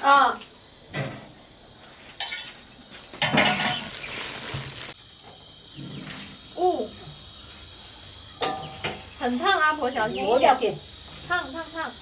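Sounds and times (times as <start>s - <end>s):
insects chirring: 0.0s - 12.0s
metal pans clattering: 2.2s - 2.6s, 3.2s - 3.9s, 8.4s - 9.0s.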